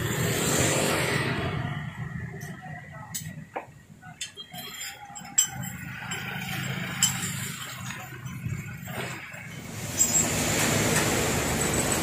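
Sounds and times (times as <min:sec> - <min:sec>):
beak and claws clinking on bars: 0:04.6 - 0:08.6.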